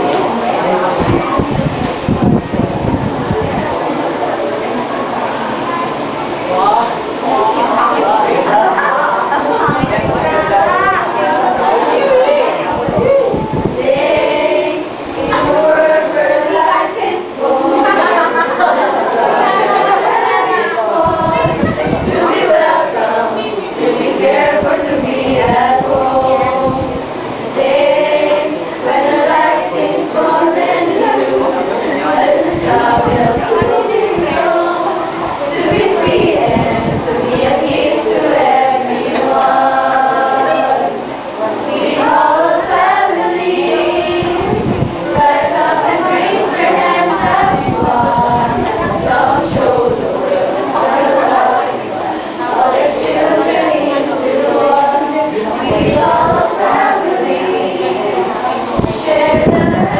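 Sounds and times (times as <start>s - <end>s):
small choir singing: 0.0s - 59.9s.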